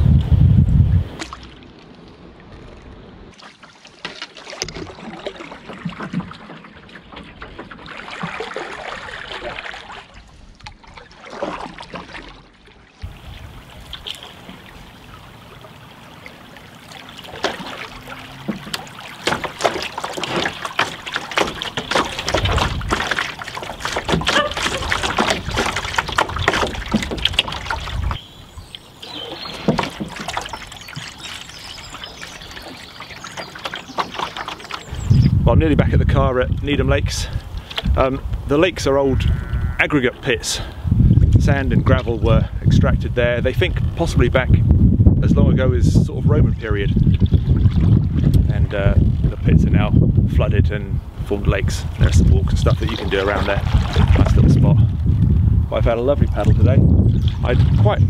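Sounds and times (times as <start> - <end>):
paddle pulling through water: 0.9 - 38.9, 40.0 - 58.0
water lapping against wooden hull: 1.0 - 58.0
small water splashes: 1.1 - 35.2, 46.4 - 49.8, 51.4 - 58.0.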